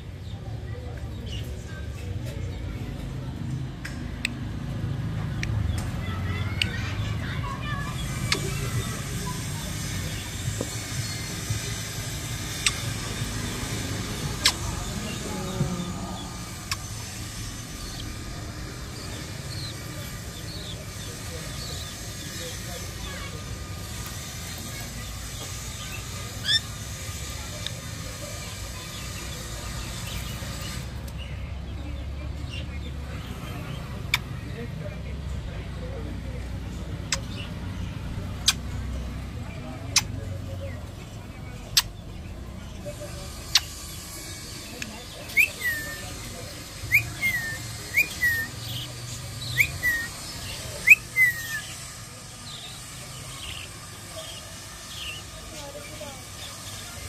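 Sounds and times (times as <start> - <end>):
budgie chirping: 8.0 - 15.3, 38.3 - 38.8, 45.2 - 51.8
parakeet whistled call: 45.3 - 46.1, 46.8 - 48.8, 49.4 - 50.2, 50.8 - 51.8.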